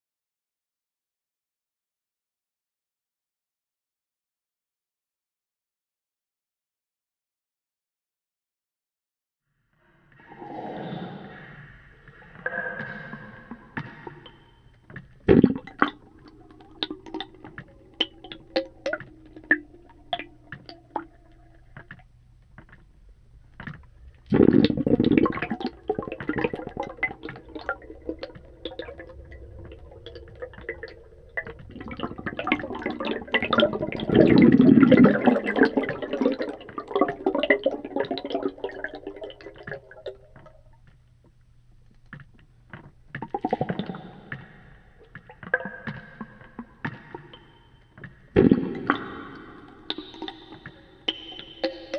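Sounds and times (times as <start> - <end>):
underwater air bubbling: 10.2 - 22.1, 23.7 - 40.8, 43.2 - 47.6, 48.3 - 51.9
gurgling bursts: 24.3 - 40.1.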